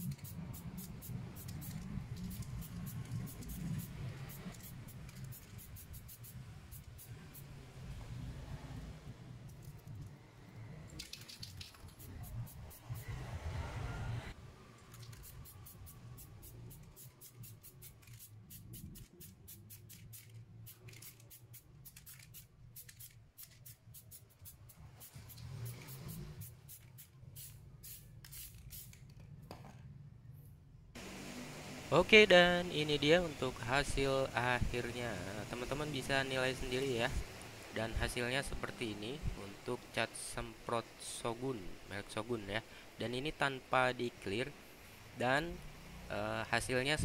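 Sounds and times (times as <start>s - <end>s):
spray paint can hissing: 0.0s - 7.6s, 11.0s - 13.2s, 14.9s - 29.0s.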